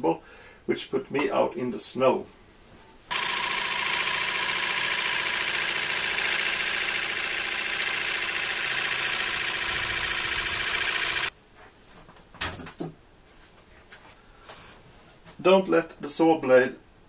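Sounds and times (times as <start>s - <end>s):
jigsaw cutting plastic sheet: 3.1s - 11.3s.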